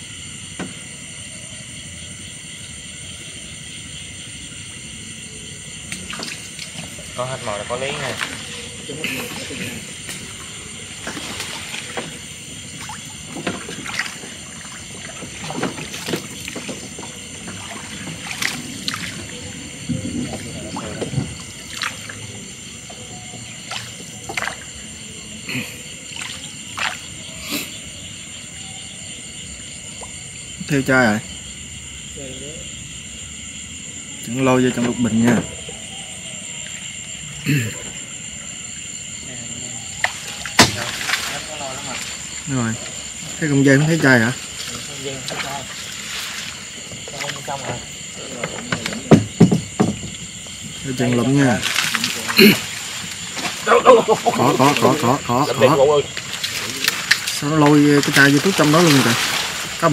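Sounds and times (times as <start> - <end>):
night insects chorus: 0.0 - 59.9
paddle splashing in water: 5.8 - 25.0, 26.1 - 27.2, 40.0 - 43.4, 44.3 - 50.8, 51.4 - 59.9.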